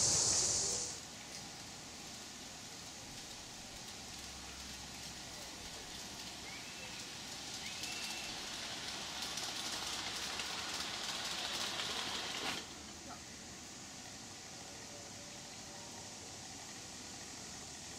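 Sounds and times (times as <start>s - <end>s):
model train clattering on track: 2.8s - 13.0s.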